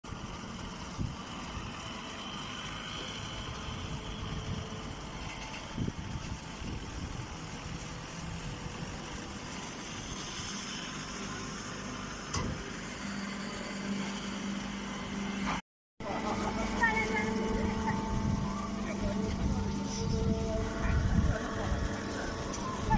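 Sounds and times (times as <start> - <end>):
baling machine conveyor running: 0.1 - 22.9
low steady hum: 16.0 - 22.9.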